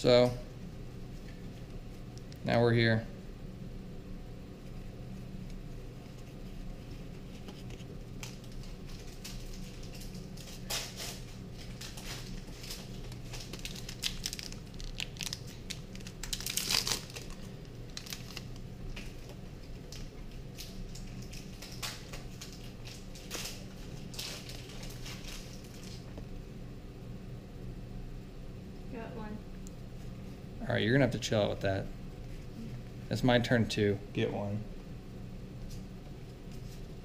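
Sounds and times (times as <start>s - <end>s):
foil wrappers tearing and crinkling: 7.3s - 26.1s.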